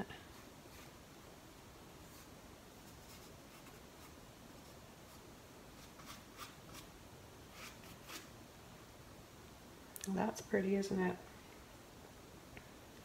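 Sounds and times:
paintbrush scratching on canvas: 0.2 - 1.0, 2.0 - 6.9.

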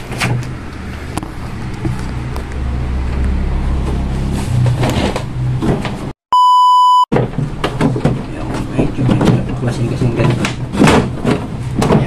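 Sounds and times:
plastic casing knocks and rustling: 10.2 - 12.0.

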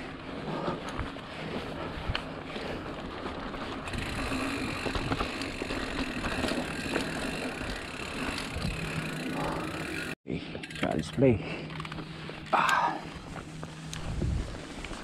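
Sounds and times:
bike rattles and clicks: 0.0 - 15.0
bike tyre rumble on dirt: 0.0 - 15.0
wind on microphone: 14.0 - 15.0.

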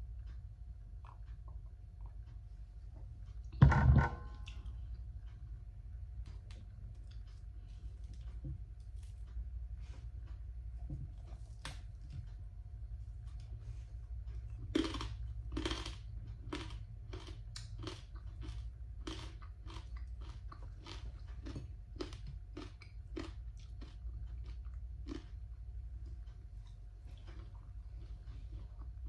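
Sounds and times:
low hum: 0.0 - 29.0
person chewing crunchy food: 14.3 - 29.0.

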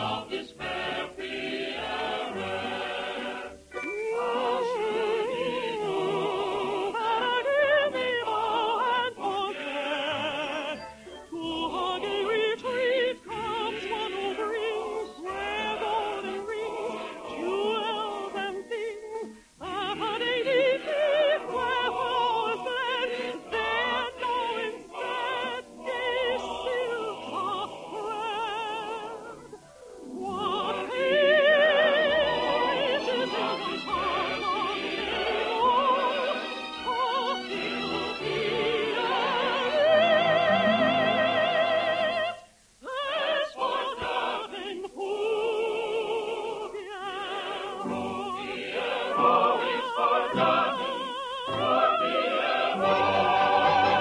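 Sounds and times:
orchestral accompaniment: 0.0 - 6.4, 29.5 - 41.3, 51.5 - 54.0.

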